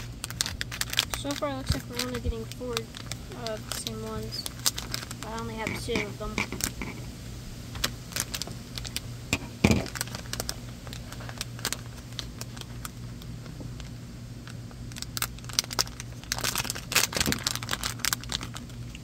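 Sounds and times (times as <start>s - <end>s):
foil packet crinkling: 0.0s - 7.1s, 7.7s - 19.0s.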